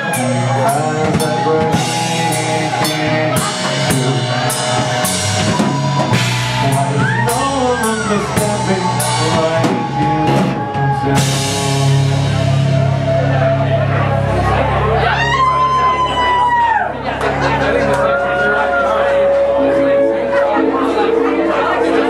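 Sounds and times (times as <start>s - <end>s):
drum kit beat with cymbals: 0.0s - 13.9s
electric guitar: 0.0s - 21.8s
electric keyboard chords: 0.0s - 22.0s.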